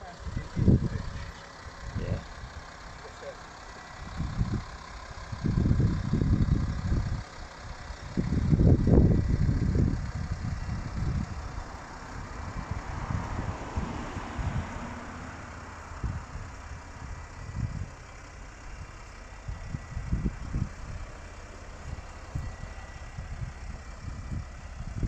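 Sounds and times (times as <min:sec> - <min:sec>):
diesel engine idling: 0:00.0 - 0:25.0
wind on microphone: 0:05.3 - 0:07.2, 0:08.0 - 0:15.0, 0:16.0 - 0:18.0, 0:19.5 - 0:21.1.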